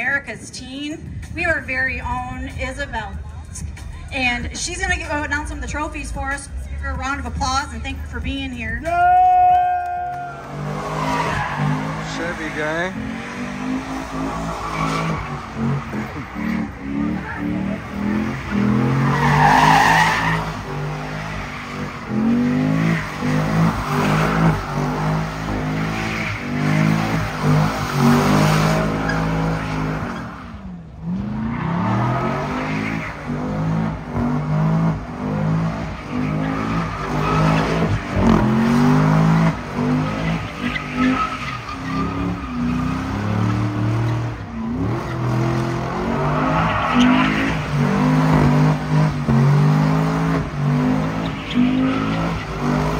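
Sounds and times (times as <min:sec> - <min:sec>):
car engine revving: 0:00.0 - 0:52.9
tyres squealing on pavement: 0:08.8 - 0:30.8, 0:35.8 - 0:52.9.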